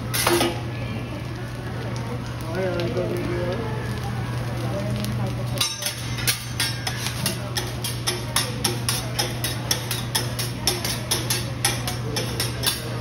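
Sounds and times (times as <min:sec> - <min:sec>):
spatulas scraping steel griddle: 0:05.6 - 0:13.0.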